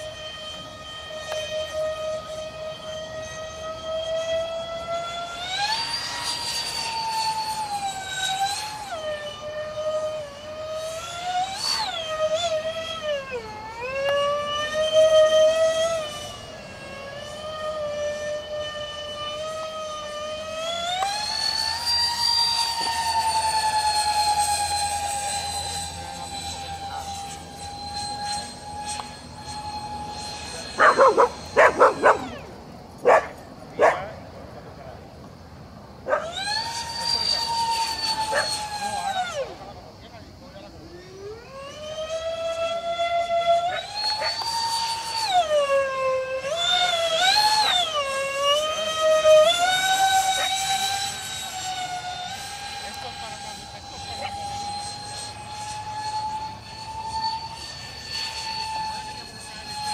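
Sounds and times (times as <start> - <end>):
model jet electric fans whining: 0.0 - 59.9
dog barking: 30.8 - 32.2.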